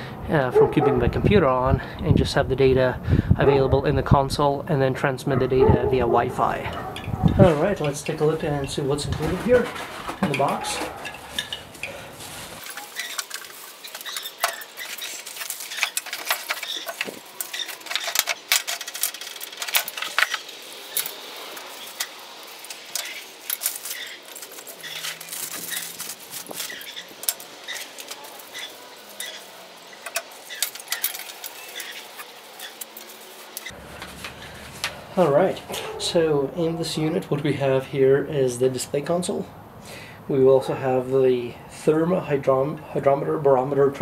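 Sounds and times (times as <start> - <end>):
plastic parts clacking on glass: 7.8 - 12.0, 12.6 - 35.0
plastic packaging crinkling: 9.1 - 34.8.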